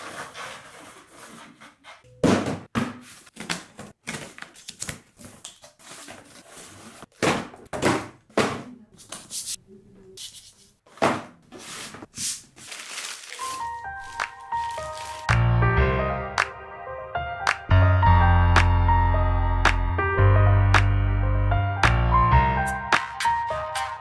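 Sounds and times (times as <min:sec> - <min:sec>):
tissue paper rustling: 0:11.6 - 0:15.3.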